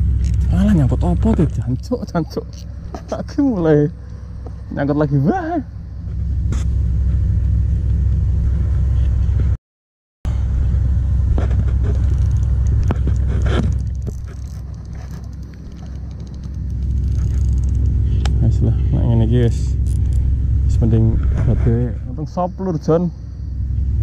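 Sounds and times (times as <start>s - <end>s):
fishing reel clicks and rustles: 11.7s - 18.4s.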